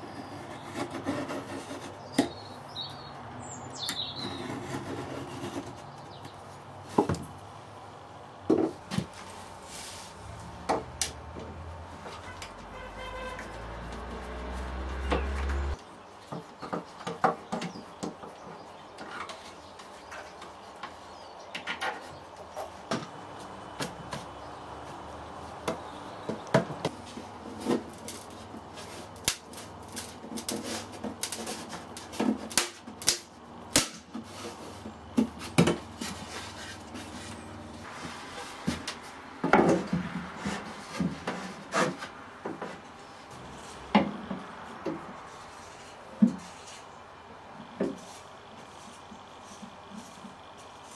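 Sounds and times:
knocks and taps of wood and tools: 8.5s - 9.1s, 14.9s - 22.2s, 22.8s - 24.4s, 43.9s - 45.2s.

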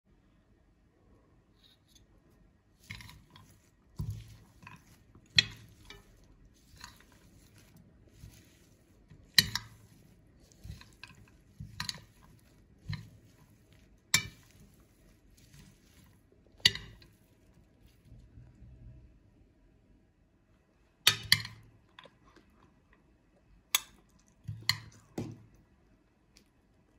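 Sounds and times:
salad leaves rustling: 2.7s - 18.6s.

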